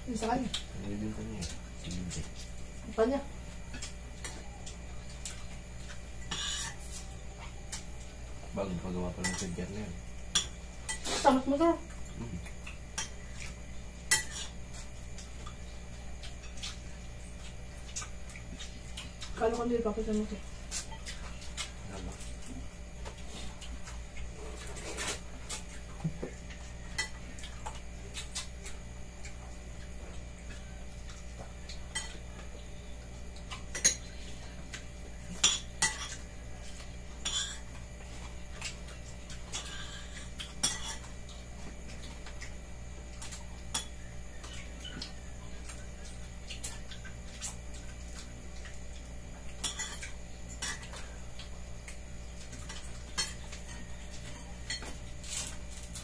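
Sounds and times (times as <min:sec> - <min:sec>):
cutlery clinking on plates: 0:09.2 - 0:09.6, 0:14.1 - 0:14.6, 0:49.6 - 0:51.0.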